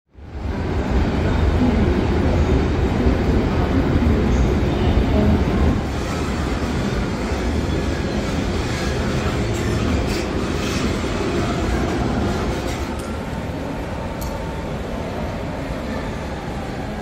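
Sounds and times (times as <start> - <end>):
train wheels rumbling on rail: 0.2 - 17.0.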